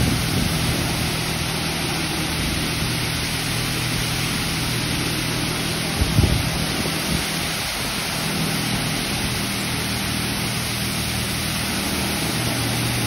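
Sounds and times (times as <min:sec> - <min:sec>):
high-pressure water spray hissing: 0:00.0 - 0:13.0
steady low hum: 0:00.0 - 0:13.0.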